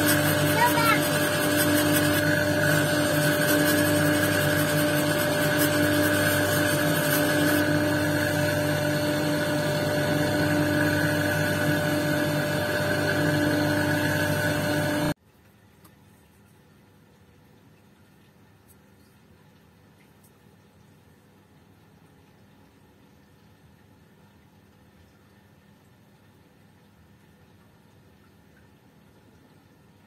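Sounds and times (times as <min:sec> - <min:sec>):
stone scratching on wheel: 0:00.0 - 0:07.7
grinding wheel motor hum: 0:00.0 - 0:15.2.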